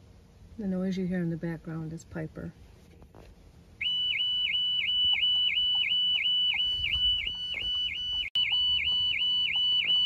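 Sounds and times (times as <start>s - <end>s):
car alarm warbling: 3.8s - 10.0s.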